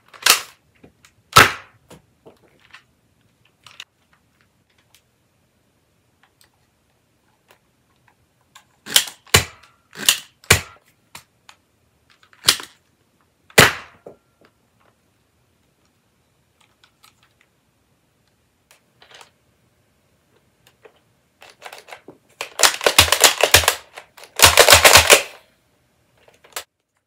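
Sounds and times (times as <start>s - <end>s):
plastic clacks of toy blaster: 8.9s - 10.7s, 21.4s - 25.4s.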